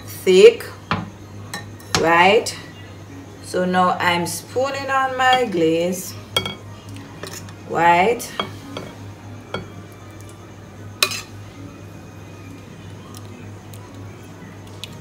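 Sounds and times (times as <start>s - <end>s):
steady low hum: 0.0s - 15.0s
metal spoon clinking on saucepan: 6.4s - 6.6s.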